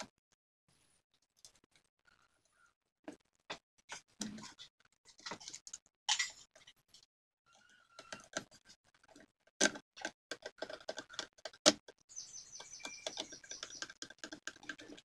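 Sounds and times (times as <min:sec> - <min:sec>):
plastic clicks and knocks: 0:08.0 - 0:12.0, 0:12.6 - 0:15.0.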